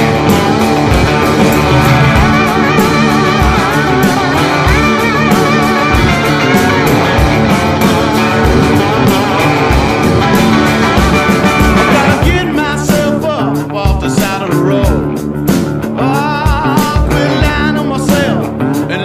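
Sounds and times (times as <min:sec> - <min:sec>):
person singing: 0:00.0 - 0:15.2, 0:15.9 - 0:19.0
rock music with guitar and drums: 0:00.0 - 0:19.0.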